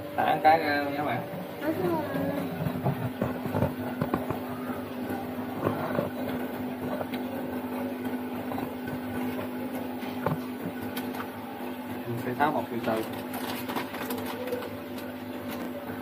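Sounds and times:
steady low hum: 0:00.0 - 0:16.0
plastic bag crinkling: 0:12.8 - 0:15.6.

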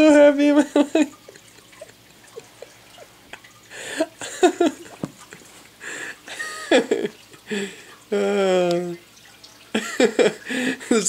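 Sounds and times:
man laughing hard: 0:09.8 - 0:11.0.

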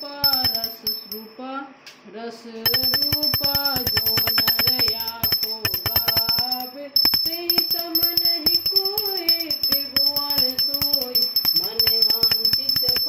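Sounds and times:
fast jingling percussion: 0:00.0 - 0:01.3, 0:02.7 - 0:13.0.

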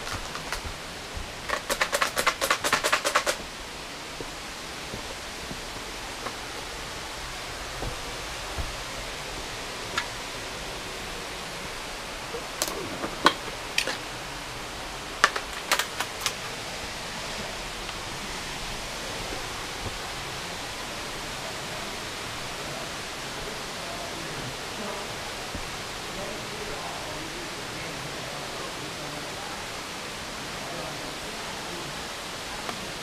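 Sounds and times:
sharp clicks and knocks: 0:00.0 - 0:03.4, 0:15.2 - 0:16.4
creek water rushing: 0:00.0 - 0:33.0.

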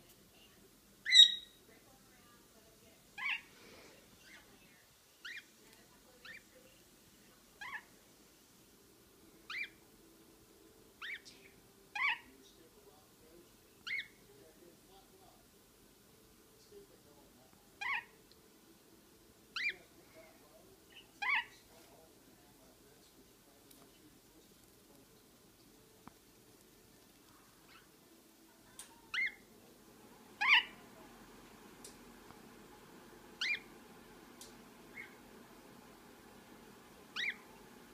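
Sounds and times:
parakeet chirping: 0:01.0 - 0:01.6, 0:03.2 - 0:03.5, 0:05.2 - 0:05.5, 0:06.2 - 0:06.6, 0:07.6 - 0:07.9, 0:09.5 - 0:09.8, 0:11.0 - 0:12.4, 0:13.8 - 0:14.2, 0:17.8 - 0:18.2, 0:19.5 - 0:19.8, 0:20.9 - 0:21.6, 0:29.1 - 0:29.5, 0:30.4 - 0:30.8, 0:33.4 - 0:33.7, 0:34.9 - 0:35.2, 0:37.1 - 0:37.5.

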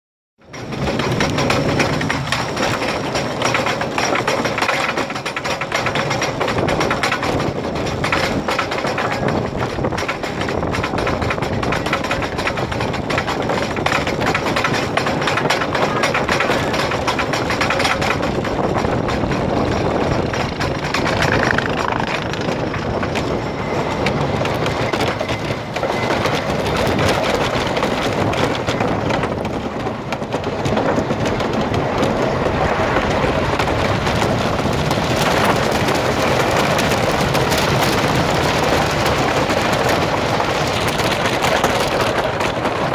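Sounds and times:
cars rattling on wooden track: 0:00.4 - 0:42.9
lift chain clatter: 0:00.5 - 0:29.0.

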